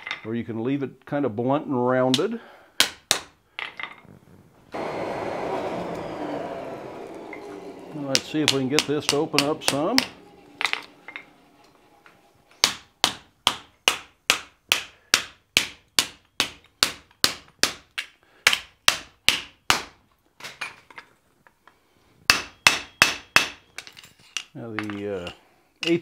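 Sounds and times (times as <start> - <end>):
hammer striking steel on anvil: 6.9 - 14.0.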